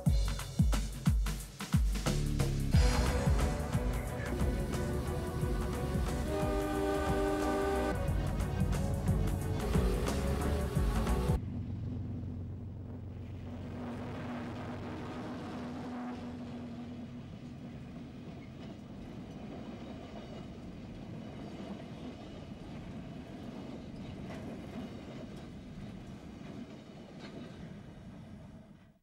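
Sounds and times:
train wheels rumbling on rail: 0.0s - 13.7s, 15.0s - 29.0s.

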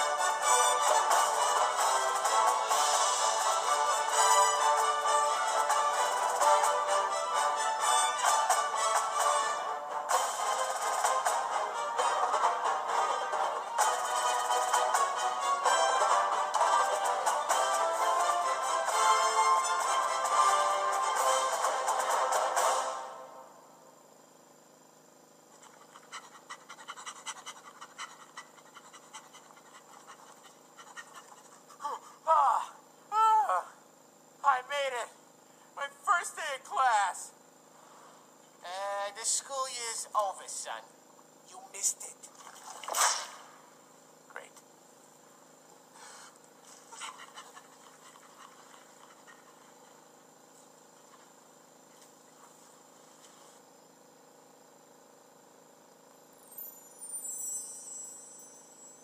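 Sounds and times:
faint hum and hiss: 0.0s - 59.0s
faint panting: 25.5s - 32.2s, 46.0s - 50.1s.

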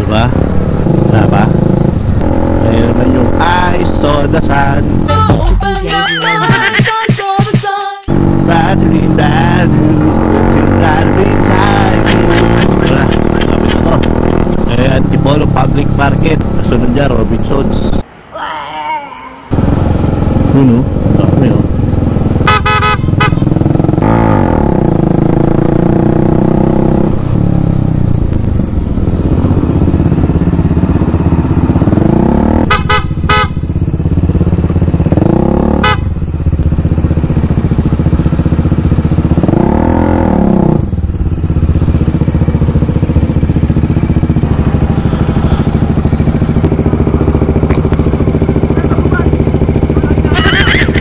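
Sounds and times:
motorcycle engine revving: 0.0s - 5.4s, 8.1s - 18.0s, 19.5s - 51.0s
short horn toots: 22.4s - 23.5s, 32.6s - 33.6s, 35.8s - 36.1s.

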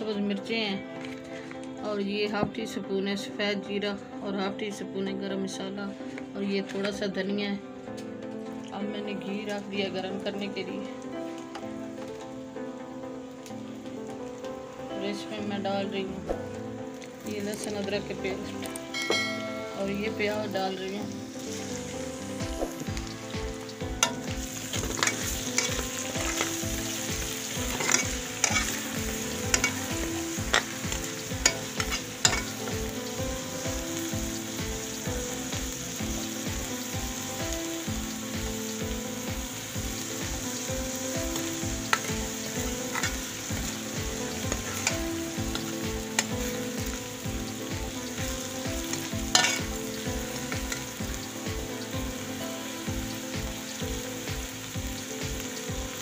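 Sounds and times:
onions sizzling in hot pan: 9.4s - 56.0s
metal ladle scraping a pan: 24.0s - 26.6s, 27.6s - 32.6s, 49.3s - 49.7s.

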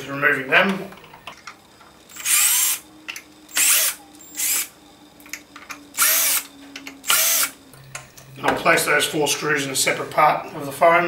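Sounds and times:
cordless drill whirring: 2.1s - 2.8s, 3.5s - 4.7s, 6.0s - 7.6s.

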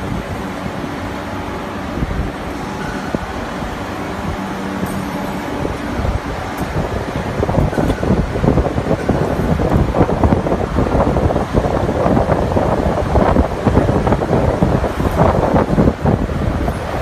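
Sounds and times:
lathe rumbling: 0.0s - 17.0s.

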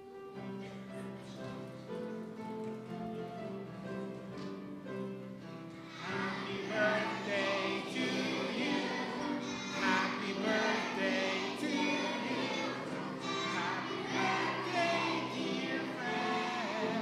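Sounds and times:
instrumental accompaniment: 0.0s - 17.0s
crowd singing a birthday song: 5.9s - 17.0s.

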